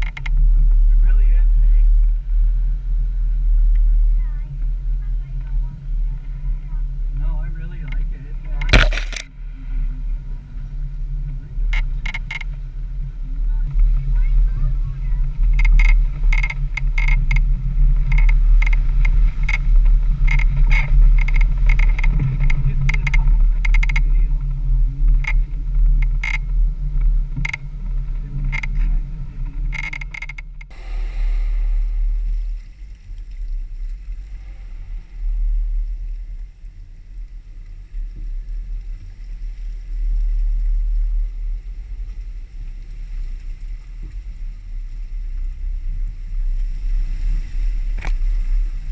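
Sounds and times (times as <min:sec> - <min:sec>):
body and suspension rattling: 0:00.0 - 0:38.5
engine rumble: 0:00.0 - 0:48.9.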